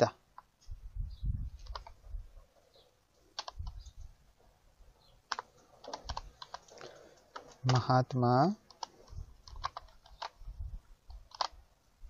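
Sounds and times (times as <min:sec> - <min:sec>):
keyboard typing: 0:01.6 - 0:02.0, 0:03.3 - 0:03.9, 0:05.3 - 0:08.0, 0:08.6 - 0:10.4, 0:11.1 - 0:11.6.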